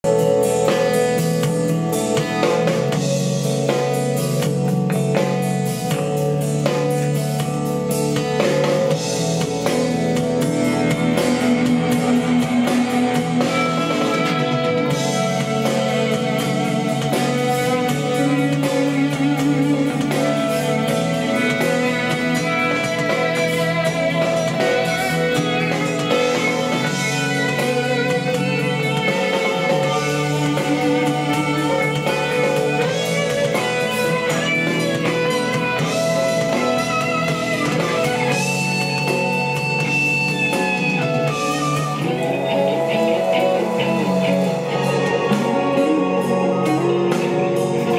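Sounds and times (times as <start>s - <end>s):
guitar music with drums: 0.0s - 47.9s.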